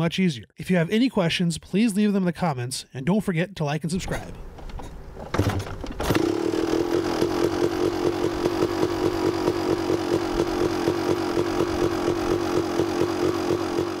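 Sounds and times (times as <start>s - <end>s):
dirt bike engine idling: 6.6s - 14.0s.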